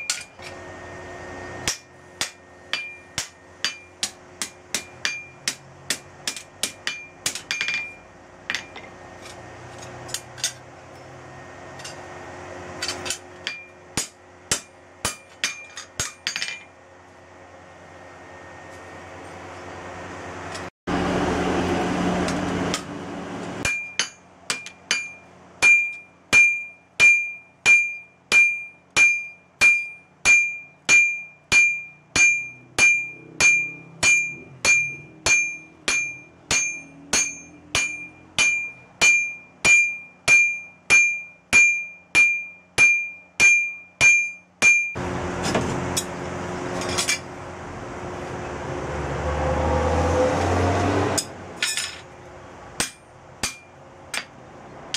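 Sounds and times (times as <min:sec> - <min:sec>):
hammer striking steel on anvil: 0:00.0 - 0:11.1, 0:11.7 - 0:16.8, 0:22.2 - 0:23.0, 0:23.6 - 0:46.2, 0:51.1 - 0:52.1, 0:52.8 - 0:54.9.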